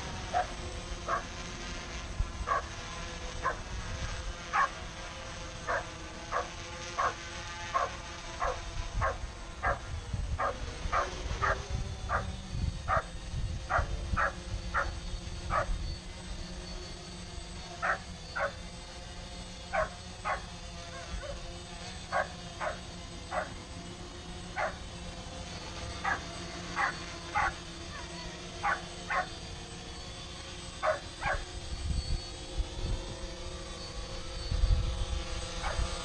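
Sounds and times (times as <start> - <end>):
drone propellers humming: 0.0 - 36.0
low rumble of drone: 0.0 - 36.0
dog barking: 5.7 - 7.2, 7.8 - 9.8, 10.4 - 12.2, 13.7 - 14.9, 17.8 - 18.5, 19.7 - 20.4, 22.1 - 23.5, 24.6 - 24.8, 26.8 - 27.6, 28.6 - 29.3, 30.8 - 31.4.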